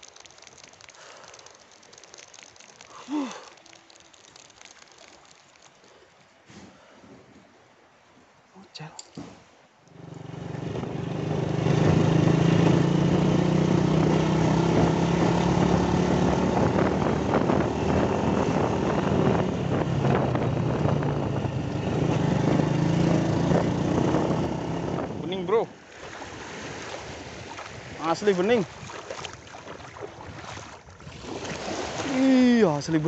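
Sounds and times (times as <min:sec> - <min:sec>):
small motorcycle engine running: 0:10.0 - 0:25.0.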